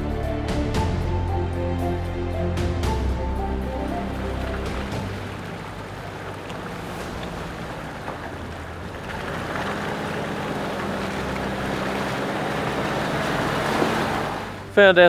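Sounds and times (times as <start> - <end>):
truck engine at low revs: 0.0 - 15.0
tyres squelching through mud: 3.3 - 14.9.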